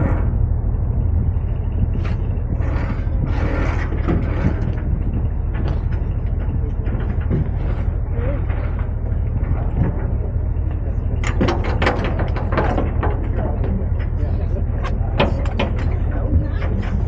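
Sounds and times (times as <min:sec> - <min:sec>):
boat engine droning: 0:00.0 - 0:17.0
wind: 0:00.0 - 0:17.0
clicks and knocks: 0:03.7 - 0:14.2, 0:14.8 - 0:17.0.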